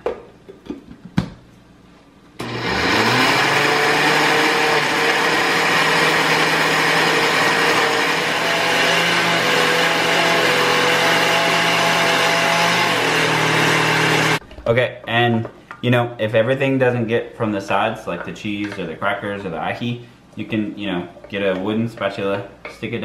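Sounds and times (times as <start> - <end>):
blender motor running: 2.4 - 14.4.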